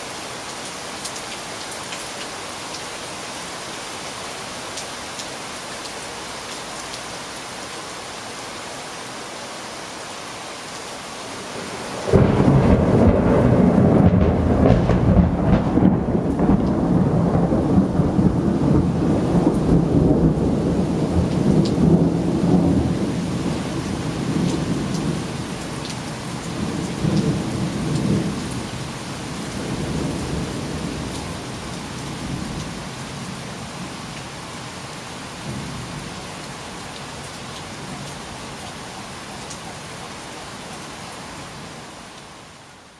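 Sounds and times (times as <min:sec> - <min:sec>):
steady rain hissing: 0:00.0 - 0:42.9
thunder clap and rumble: 0:12.0 - 0:23.0.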